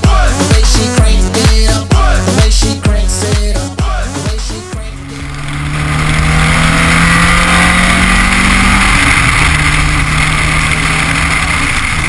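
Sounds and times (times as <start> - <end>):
car engine low note: 4.0 - 12.0.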